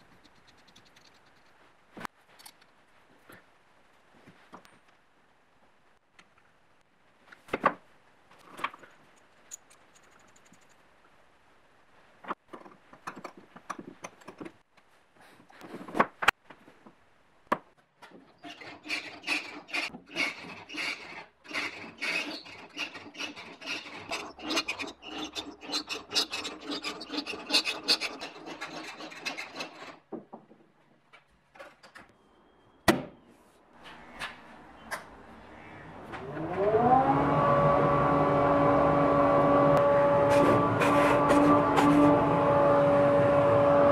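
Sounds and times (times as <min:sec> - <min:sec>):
wood rubbing and scraping: 0:18.1 - 0:30.6, 0:40.2 - 0:42.4.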